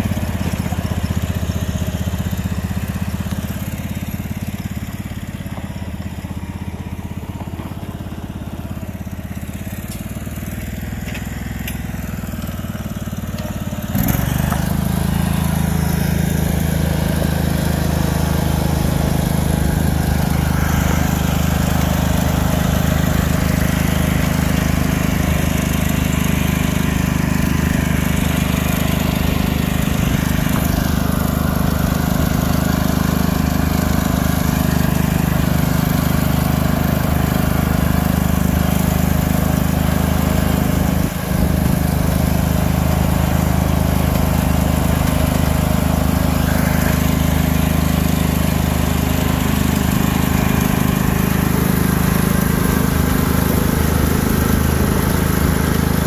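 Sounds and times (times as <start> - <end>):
lawn mower engine running: 0.0 - 56.0.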